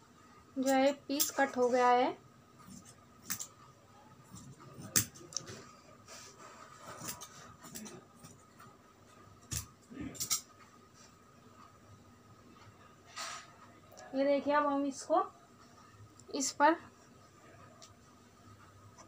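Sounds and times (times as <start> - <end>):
scissors snipping fabric: 4.4 - 5.5.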